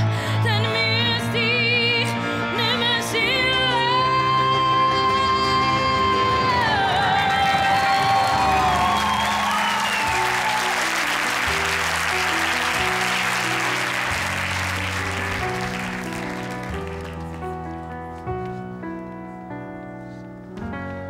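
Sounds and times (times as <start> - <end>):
piano accompaniment: 0.0 - 21.0
audience applauding: 6.1 - 18.2.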